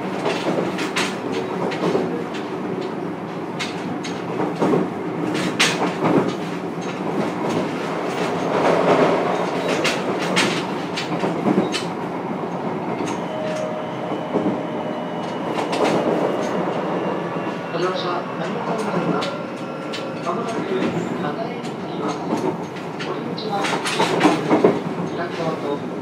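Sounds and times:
train wheels rumbling on rail: 0.0 - 26.0
wheels clacking over rail joints: 3.6 - 12.0.

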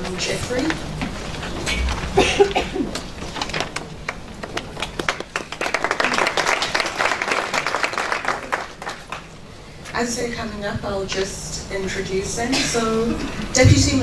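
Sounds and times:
audience applauding: 1.6 - 9.6.

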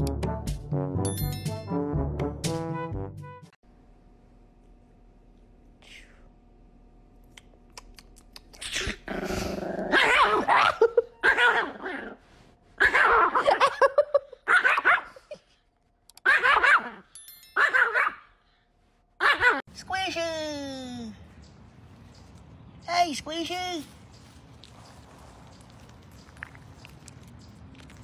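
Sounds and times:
puppy barking and growling: 8.6 - 12.2, 12.8 - 13.7, 14.4 - 15.3, 16.2 - 18.4, 19.2 - 19.6.

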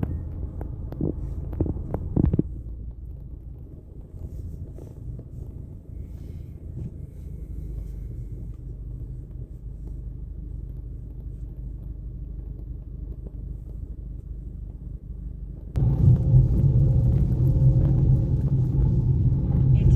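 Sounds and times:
tram rumbling: 15.8 - 19.9.

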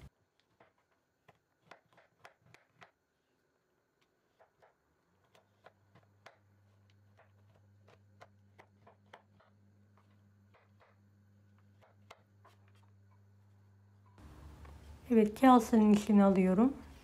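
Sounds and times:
knife chopping on wooden board: 0.5 - 3.0, 4.2 - 12.9
low steady hum: 5.4 - 17.0.

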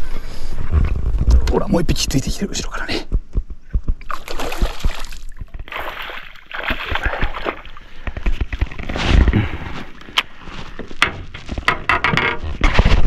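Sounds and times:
fish thrashing and splashing in water: 4.0 - 8.9.

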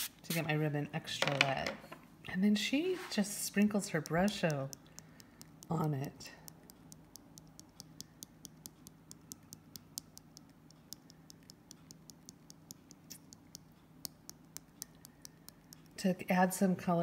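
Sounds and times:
light ticks of shaken powder pot: 3.1 - 16.4.

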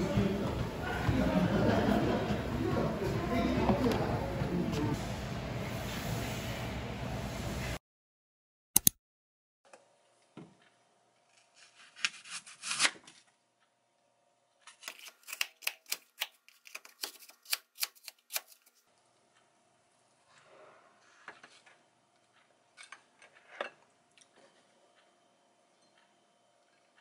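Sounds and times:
sharp clicks: 8.8 - 9.0
knife slicing apple: 11.4 - 13.0.

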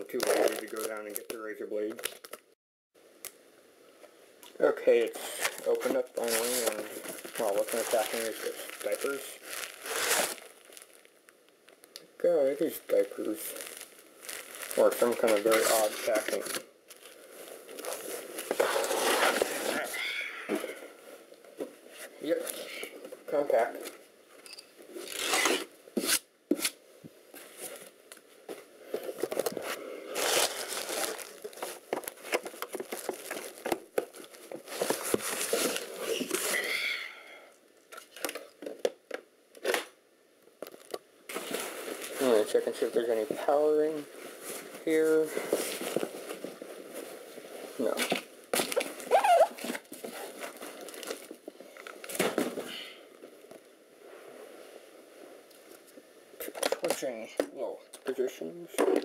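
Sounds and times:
packing material rustling: 0.0 - 2.4, 5.2 - 11.1, 12.6 - 19.9, 29.0 - 36.6, 40.6 - 42.7, 44.2 - 52.6
handling rustling and knocks: 30.6 - 36.4.

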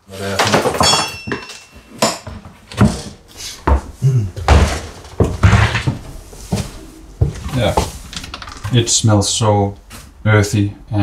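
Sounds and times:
knocks and clatter in kitchen: 0.2 - 9.0
loud bangs and rattles: 2.8 - 9.2.

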